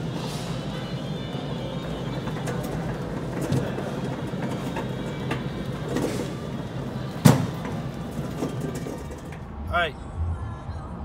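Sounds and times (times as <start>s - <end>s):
cart wheels rumbling on concrete: 0.0s - 9.6s.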